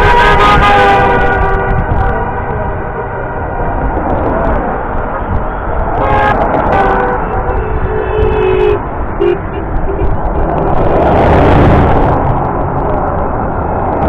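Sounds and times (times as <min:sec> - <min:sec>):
vehicle horns honking: 0:00.0 - 0:03.2, 0:05.2 - 0:10.4
road noise rumble: 0:00.0 - 0:14.0.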